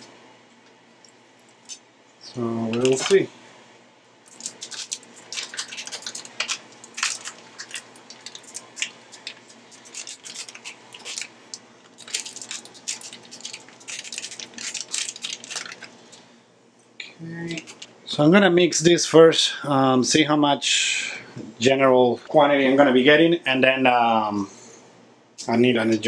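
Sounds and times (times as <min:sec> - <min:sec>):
plastic crinkling: 0:04.3 - 0:16.3.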